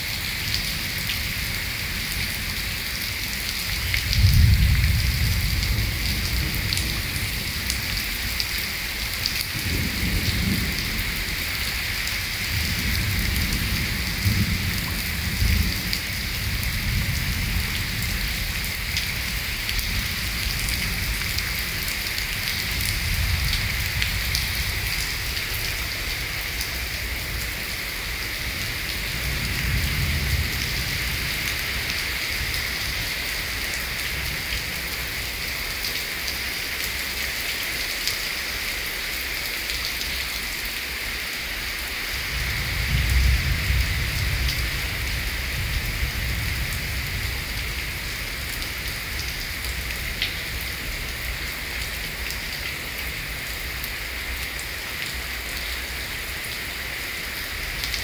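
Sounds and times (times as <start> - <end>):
heavy rain on paving: 0.0 - 58.0
thunder rumbles: 3.9 - 8.3, 9.5 - 33.0, 42.3 - 49.6.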